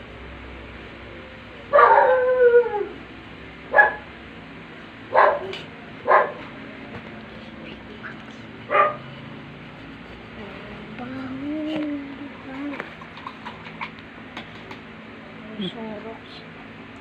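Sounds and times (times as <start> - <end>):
dog barking: 1.7 - 2.3, 3.7 - 4.1, 5.1 - 6.4, 8.7 - 9.0
dog howling: 1.7 - 3.0.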